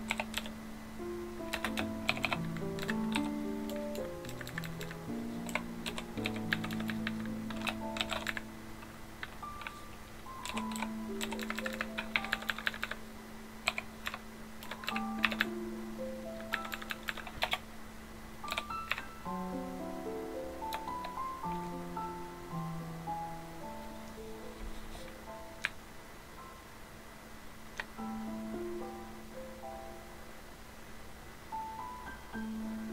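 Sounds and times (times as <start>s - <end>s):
typing on computer keyboard: 0.0s - 0.6s, 1.5s - 8.5s, 10.4s - 13.0s, 13.6s - 15.5s, 16.4s - 17.6s, 18.4s - 19.1s, 20.7s - 21.2s
background music sustained notes: 0.0s - 26.8s, 27.8s - 30.4s, 31.5s - 32.9s.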